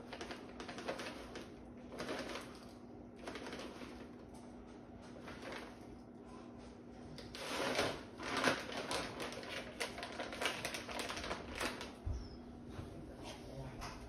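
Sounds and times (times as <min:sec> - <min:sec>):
plastic pouch crinkling: 0:00.0 - 0:04.2, 0:07.3 - 0:12.0.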